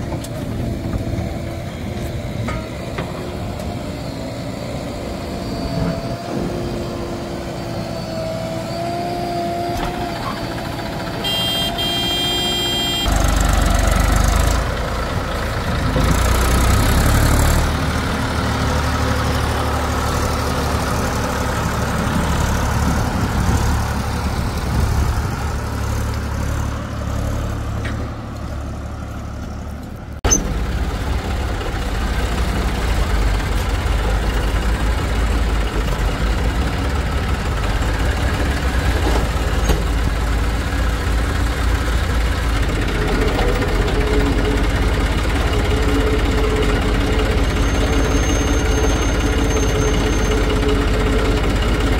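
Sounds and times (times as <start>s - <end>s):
heavy diesel engines rumbling: 0.0s - 51.9s
brief high-pitched tone: 11.2s - 13.1s.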